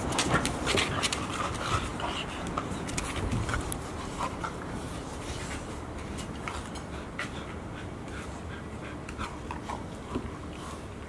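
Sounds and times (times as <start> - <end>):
puppies scuffling: 0.0 - 7.5
paws on hard floor: 0.0 - 11.0.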